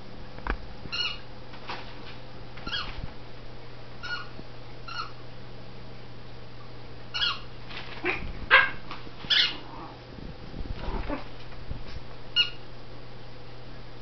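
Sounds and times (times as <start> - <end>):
small dogs yipping and barking: 0.9 - 1.3, 4.0 - 5.2, 7.1 - 9.9, 12.4 - 12.6.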